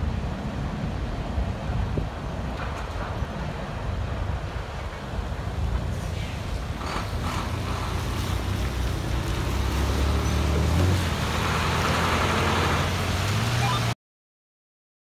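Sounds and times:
tyre hiss on wet pavement: 5.8 - 13.6
car engine hum: 6.5 - 14.0.

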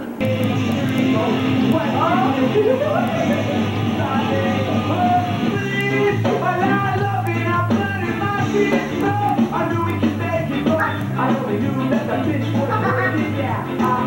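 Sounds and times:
rock music with singing: 0.2 - 14.0
steady bass line: 0.2 - 14.0.

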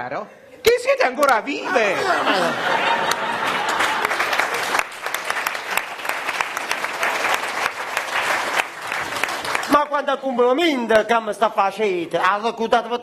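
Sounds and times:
audience applauding: 2.2 - 10.3.

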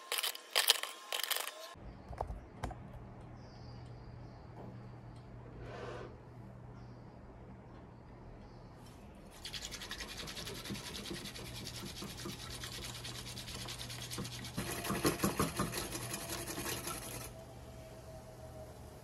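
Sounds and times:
whisk scraping in mug: 9.7 - 17.3.

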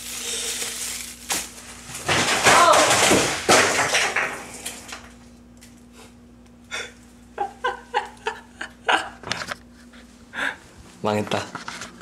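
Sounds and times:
rustling and handling noise: 0.0 - 2.7.

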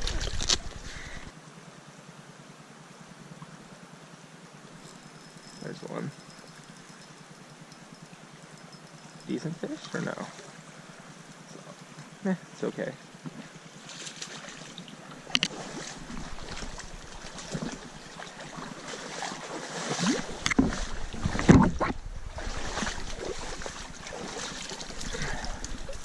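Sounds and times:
stream water running: 0.0 - 26.0
rustling and knocks from movement: 20.3 - 22.1.

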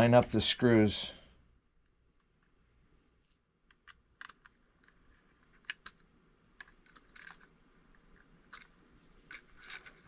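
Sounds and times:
small plastic and metal parts clicking: 3.2 - 10.0.

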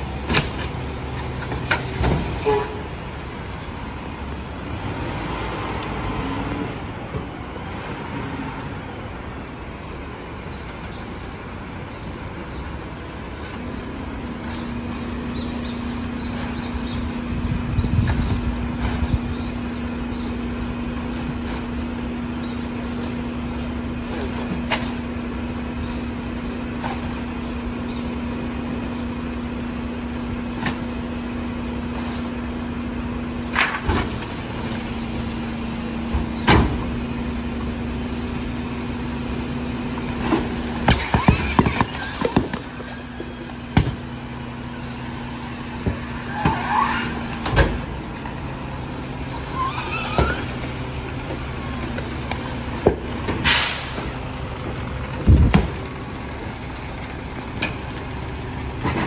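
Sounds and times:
garbage truck humming: 0.0 - 59.0
packer blade squeaks: 40.9 - 43.0, 49.4 - 50.6.

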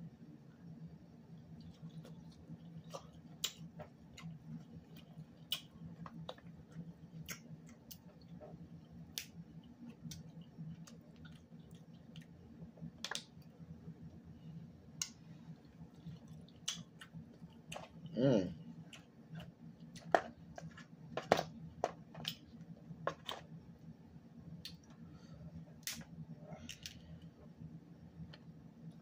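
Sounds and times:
faint low hum: 0.0 - 29.0
person chewing: 1.4 - 13.5, 15.0 - 23.5.

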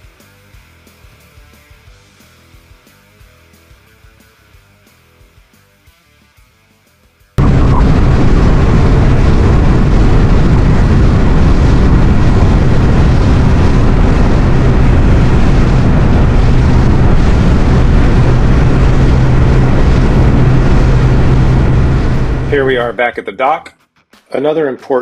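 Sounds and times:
outboard motor drone: 7.4 - 22.6
rush of wind and water: 7.4 - 22.7.

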